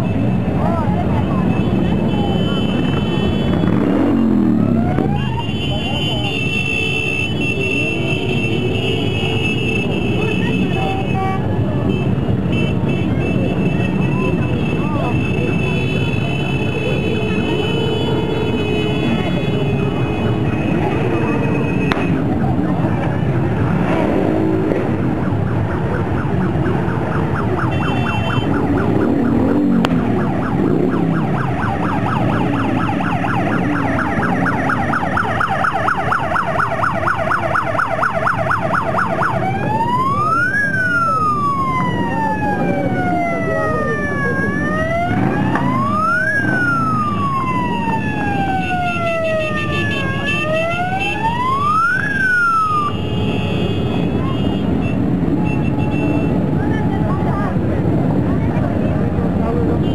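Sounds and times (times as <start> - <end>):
motorcycles rumbling past: 0.2 - 5.5, 18.9 - 35.4, 39.4 - 52.9
siren warbling and wailing: 2.7 - 5.5, 20.0 - 53.0.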